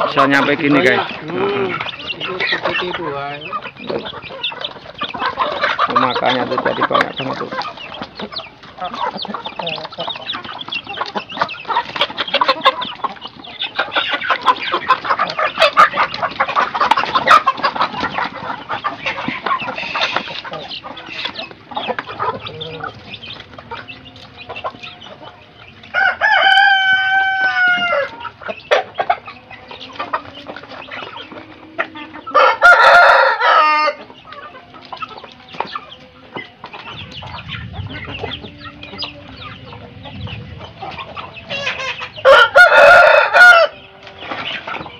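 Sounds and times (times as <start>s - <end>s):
chickens clucking: 0.0s - 44.9s
chickens pecking clicks: 0.1s - 25.2s, 34.2s - 37.4s
rooster crowing: 24.0s - 28.3s, 31.5s - 34.2s, 36.9s - 44.0s.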